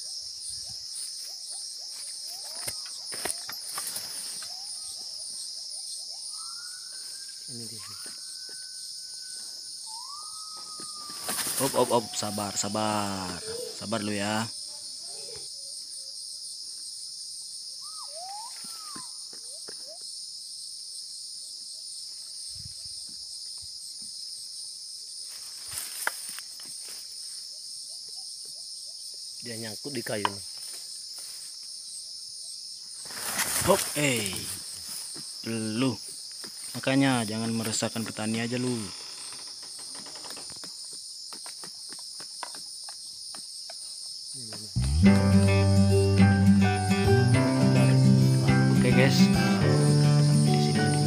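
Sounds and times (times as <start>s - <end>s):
insect chorus: 0.0s - 51.0s
rising whistled calls: 6.1s - 12.6s, 17.8s - 19.6s
footsteps through leaf litter: 11.2s - 12.1s, 33.0s - 34.8s.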